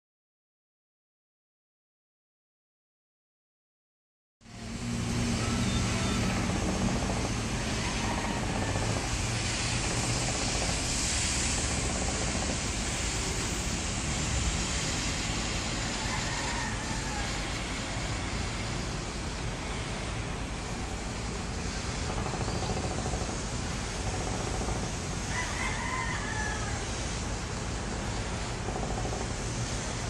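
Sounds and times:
low engine hum: 4.4 - 25.3
town ambience noise: 4.4 - 30.0.

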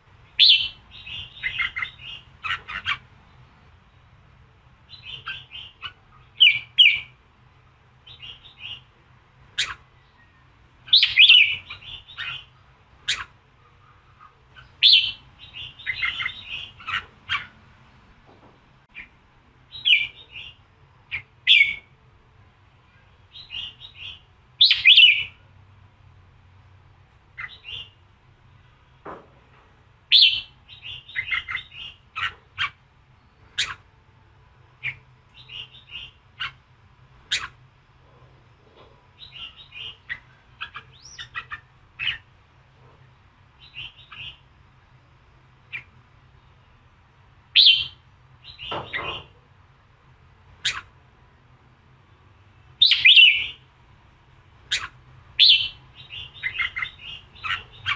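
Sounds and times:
bulbul chirping song: 0.1 - 7.2, 8.0 - 17.6, 18.9 - 22.0, 22.9 - 25.4, 27.3 - 28.0, 30.1 - 33.9, 34.8 - 36.6, 37.2 - 37.6, 39.2 - 42.3, 43.5 - 44.6, 47.5 - 49.4, 50.5 - 51.0, 52.6 - 53.7, 54.6 - 57.9.

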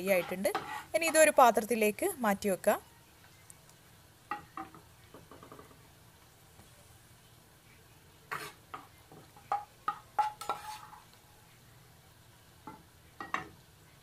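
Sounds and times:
metal spoon clinking on pan: 8.3 - 11.1.

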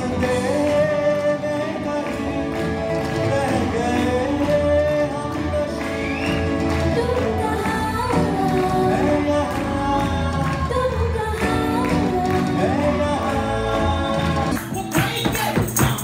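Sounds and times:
live band playing: 0.0 - 16.0
woman singing: 6.6 - 15.4.

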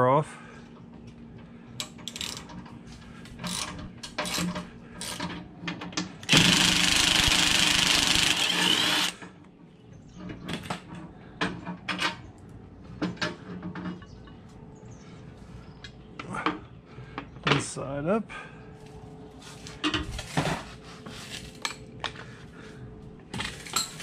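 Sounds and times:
tools clicking and knocking: 1.8 - 2.8, 3.4 - 7.1
power tool running: 6.2 - 9.2.

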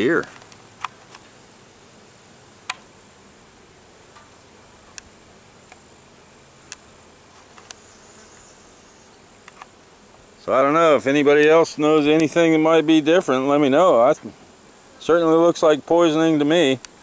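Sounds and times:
bees buzzing: 0.0 - 17.0
sharp clicks: 6.6 - 6.9.

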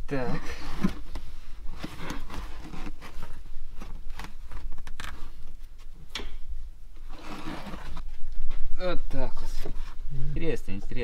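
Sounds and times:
carpet cover scraping and rustling: 0.1 - 5.4, 7.0 - 8.0.

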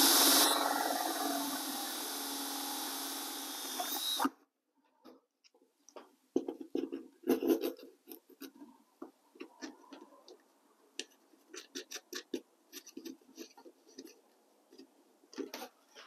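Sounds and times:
cordless drill boring: 0.0 - 4.3.

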